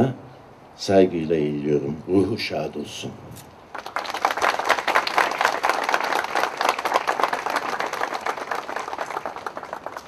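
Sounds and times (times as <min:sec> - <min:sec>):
crowd applauding: 0:03.7 - 0:10.0.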